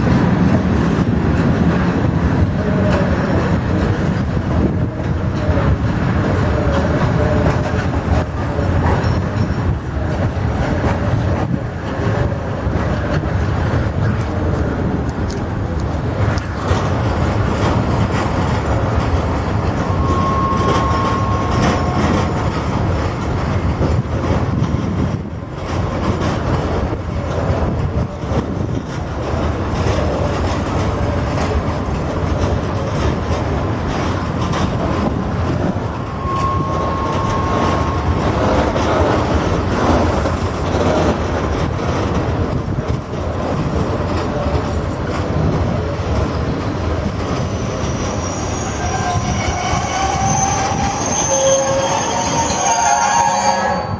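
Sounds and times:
freight train rumbling and clattering: 0.0s - 53.9s
train wheels squealing: 7.1s - 9.8s, 19.4s - 22.6s, 35.9s - 38.8s, 47.4s - 53.9s.

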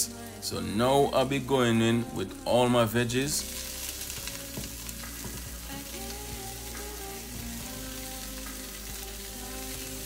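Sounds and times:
vegetables sizzling in oil: 0.0s - 10.0s.

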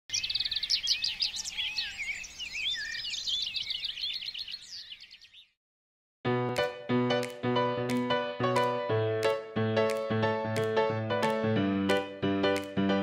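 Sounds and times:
songbirds chirping and whistling: 0.1s - 5.6s
piano chords music: 6.2s - 13.0s.

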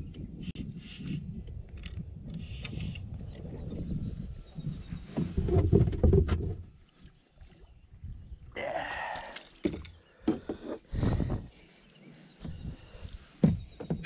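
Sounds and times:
knocks and bumps in plastic kayak: 4.8s - 6.7s, 9.6s - 11.6s, 12.4s - 14.0s.

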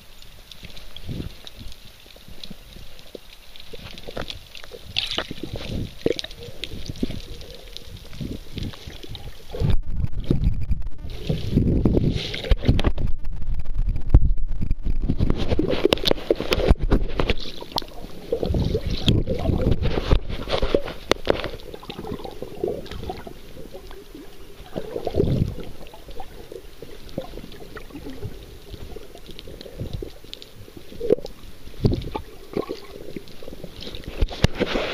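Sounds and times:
water gurgling underwater: 0.0s - 34.9s
underwater clicks and knocks: 3.7s - 7.2s, 11.5s - 13.2s, 13.8s - 24.0s, 33.8s - 34.9s.

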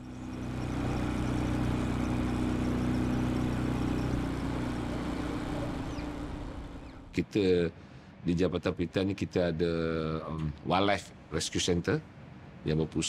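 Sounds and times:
vehicle engine humming: 0.0s - 7.2s.

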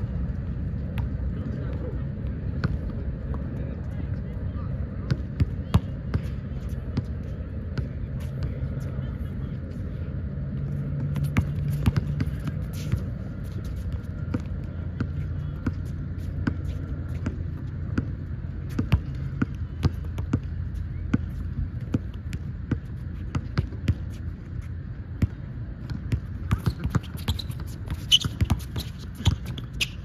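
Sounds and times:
low hum: 0.0s - 30.0s
flat basketball bouncing: 0.8s - 1.9s, 2.5s - 3.4s, 5.0s - 8.6s, 10.7s - 24.2s, 25.2s - 30.0s.

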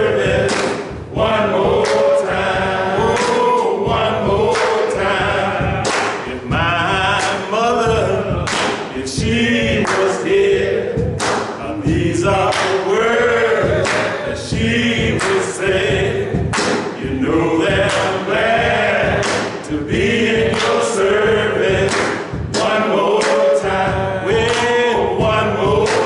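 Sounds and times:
man singing gospel lead: 0.0s - 26.0s
voices singing: 0.0s - 26.0s
handclaps: 0.4s - 1.0s, 1.8s - 2.2s, 3.1s - 3.6s, 4.5s - 5.0s, 5.8s - 6.3s, 7.1s - 7.5s, 8.4s - 9.0s, 9.8s - 10.3s, 11.2s - 11.6s, 12.4s - 12.9s, 13.8s - 14.2s, 15.2s - 15.6s, 16.5s - 17.1s, 17.8s - 18.3s, 19.1s - 19.7s, 20.4s - 21.0s, 21.8s - 23.7s, 24.4s - 25.0s.

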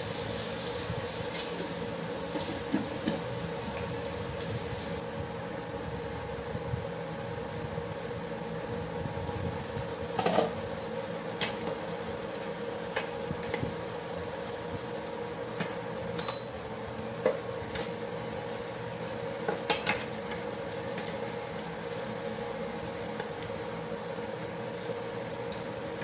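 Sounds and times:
chicken and onion sizzling in pot: 0.0s - 5.0s
steady hum: 0.0s - 26.0s.

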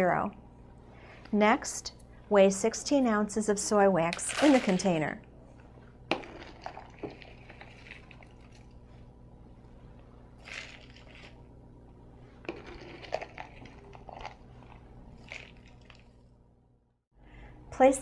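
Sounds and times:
wax flakes pouring into plastic: 10.4s - 11.4s, 12.5s - 14.4s.

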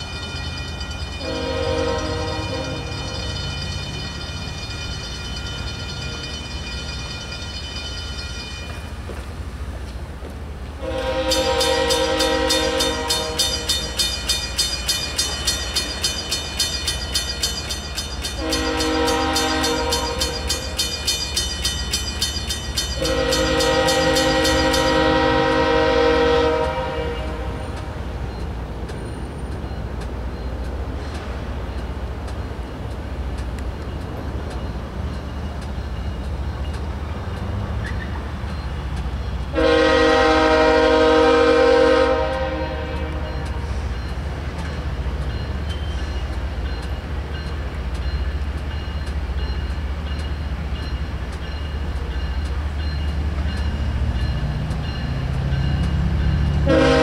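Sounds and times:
crossing bell ringing rapidly: 0.0s - 9.6s, 11.2s - 37.6s, 42.5s - 57.0s
faint higher horn chord: 1.2s - 3.0s, 39.5s - 43.2s
locomotive air horn blasts: 1.2s - 3.1s, 10.8s - 13.7s, 18.4s - 20.7s, 23.0s - 27.7s, 39.5s - 43.8s, 56.6s - 57.0s.

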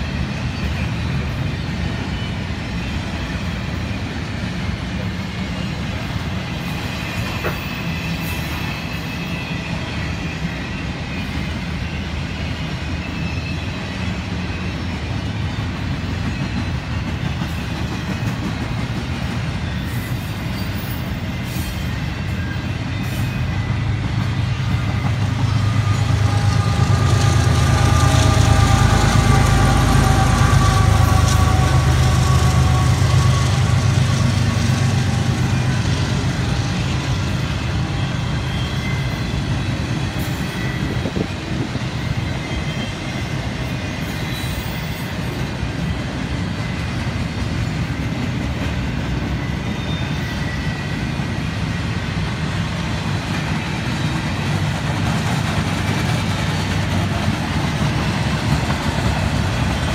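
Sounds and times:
diesel locomotive engine rumble: 0.0s - 59.9s
freight cars rumbling on rails: 0.0s - 59.9s.

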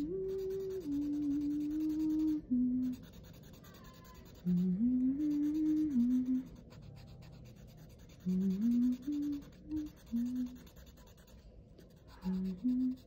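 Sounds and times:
person humming a slow tune: 0.0s - 6.8s, 8.2s - 10.8s, 12.1s - 13.0s
marker scratching on paper: 0.0s - 13.0s.

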